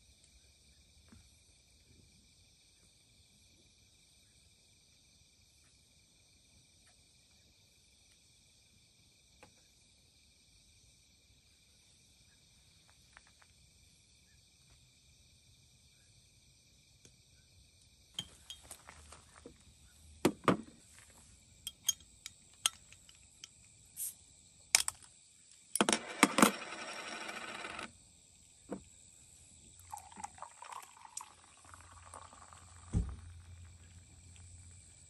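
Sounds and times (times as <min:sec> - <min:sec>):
bottle cap opening hiss: 0:24.0 - 0:24.2
beer pouring into cup: 0:29.7 - 0:34.0.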